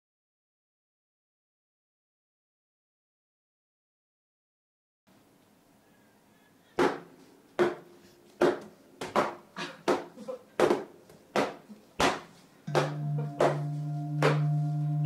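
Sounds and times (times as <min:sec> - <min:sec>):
stick whacking pinata: 0:06.8 - 0:07.8, 0:08.4 - 0:14.5.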